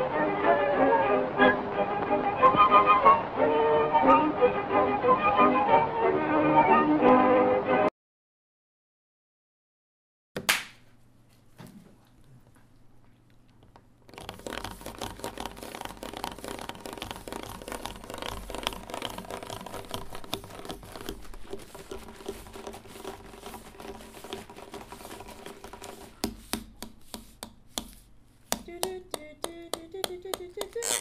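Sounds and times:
scratchy crackling noise with clicks: 13.5 - 26.0.

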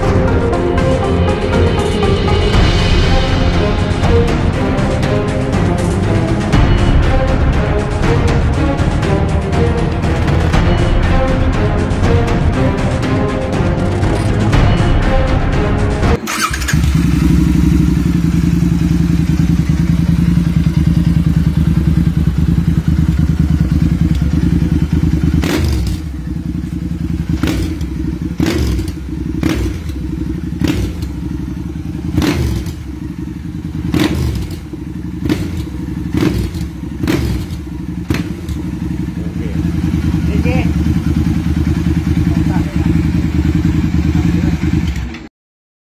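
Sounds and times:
motorcycle engine idling and revving: 0.0 - 45.3
exhaust cracking: 16.2 - 45.3.

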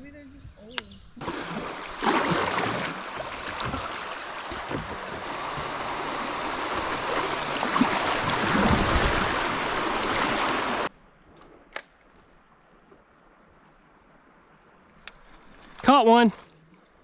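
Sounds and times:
rushing river water: 1.2 - 10.9.

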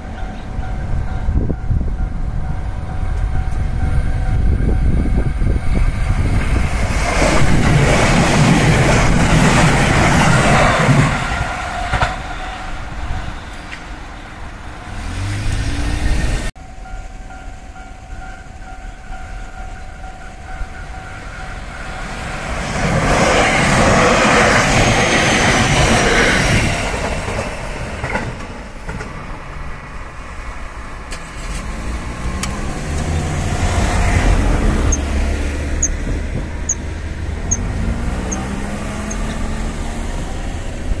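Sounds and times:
level crossing warning bell: 0.0 - 5.7, 16.6 - 22.4
train wheels clattering on rails: 0.0 - 13.9, 17.3 - 29.5, 31.1 - 39.3.

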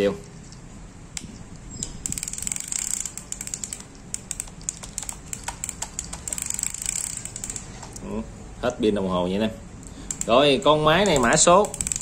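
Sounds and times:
fishing reel ratcheting clicks: 1.2 - 8.0, 9.9 - 12.0.

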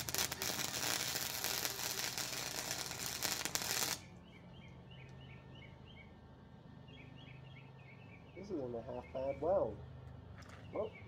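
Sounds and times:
welder arc sizzling and crackling: 0.0 - 4.1.

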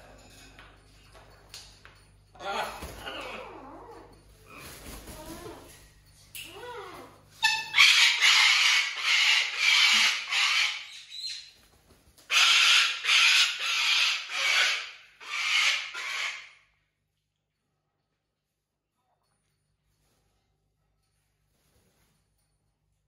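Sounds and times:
cockatoo screeching: 6.6 - 11.5, 12.3 - 16.6.

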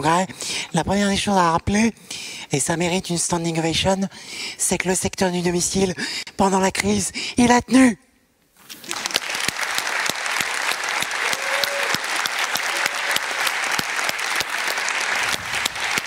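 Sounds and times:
audience applauding: 8.7 - 16.0.

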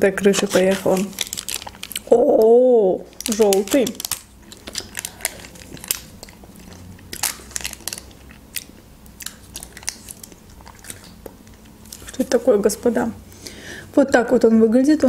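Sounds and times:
person eating pudding: 3.1 - 12.2.

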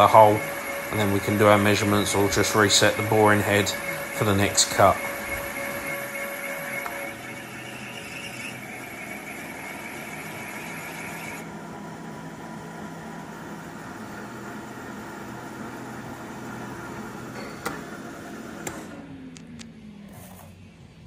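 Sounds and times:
milling machine running: 0.0 - 19.6
high squeal of metal cutting: 2.0 - 11.4.

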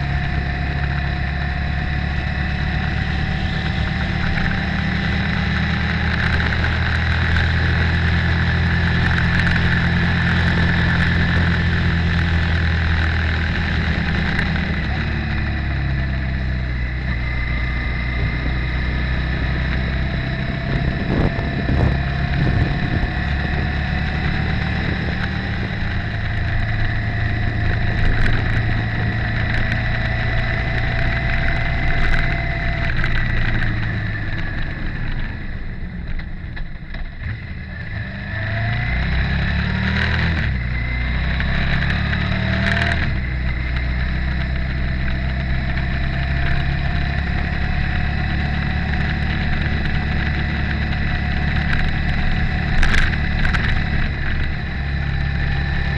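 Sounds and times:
motorcycle engine revving: 0.0 - 55.9.

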